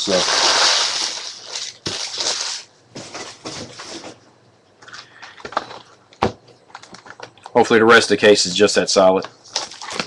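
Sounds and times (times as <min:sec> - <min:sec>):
plastic wrapping crinkling: 0:00.0 - 0:03.9, 0:09.4 - 0:10.0.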